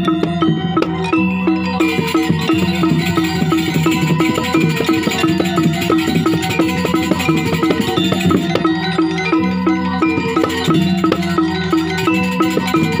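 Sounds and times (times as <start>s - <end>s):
metallophones ringing: 0.0s - 13.0s
drum strokes: 1.8s - 9.0s, 10.0s - 13.0s.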